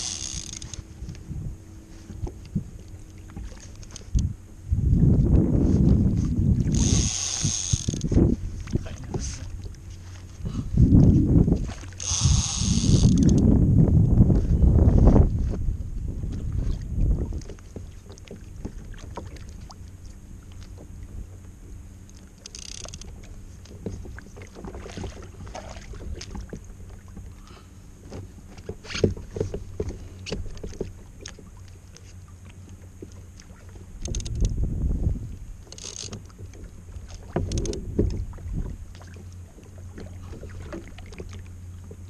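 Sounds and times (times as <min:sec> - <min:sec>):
small clicks and knocks of gear: 0:00.0 - 0:01.2, 0:02.0 - 0:04.3, 0:12.0 - 0:13.4, 0:22.0 - 0:24.7, 0:28.1 - 0:34.6, 0:35.6 - 0:36.7, 0:37.3 - 0:38.2
wind rumbling on microphone: 0:00.0 - 0:27.6, 0:33.0 - 0:42.0
water lapping against kayak: 0:00.0 - 0:42.0.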